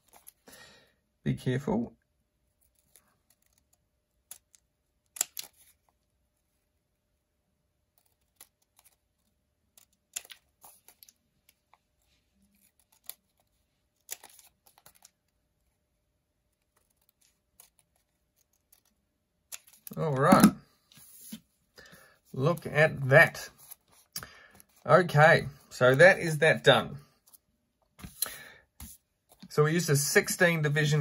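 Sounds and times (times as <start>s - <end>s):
scissors snipping paper: 4.3s - 5.8s, 12.5s - 15.2s.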